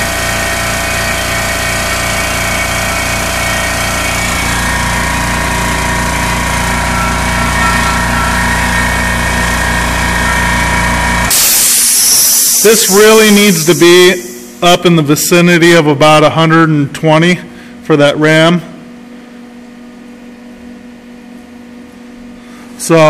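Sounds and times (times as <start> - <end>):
electric air compressor running: 0.0 - 15.3.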